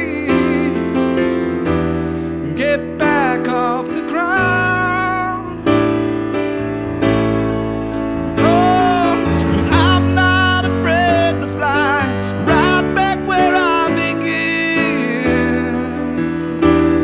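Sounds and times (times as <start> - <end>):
piano chords: 0.0 - 17.0.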